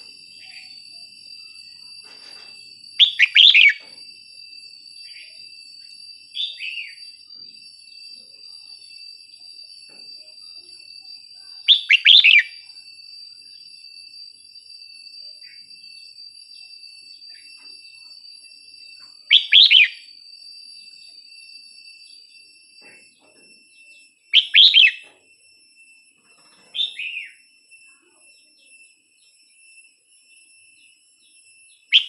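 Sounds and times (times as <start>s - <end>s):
bird singing: 2.8s - 4.0s, 5.0s - 7.2s, 11.4s - 12.7s, 19.3s - 20.1s, 23.1s - 25.1s, 26.7s - 27.5s, 28.2s - 32.0s.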